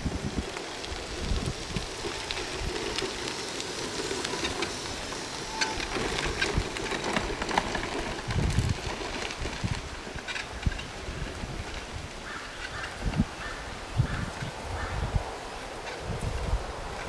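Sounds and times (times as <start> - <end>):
wheelchair tyres crunching on gravel: 0.0 - 17.0.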